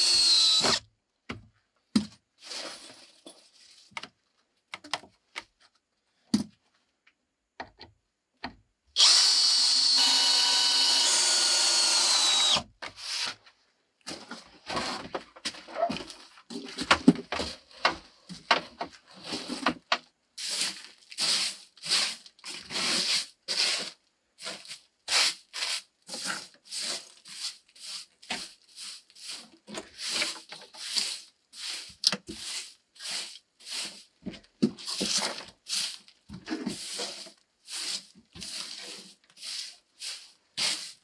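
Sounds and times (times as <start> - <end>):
broom sweeping wooden floor: 2.4 - 3.9, 12.9 - 13.4, 19.1 - 19.6, 20.4 - 34.2, 34.8 - 41.0.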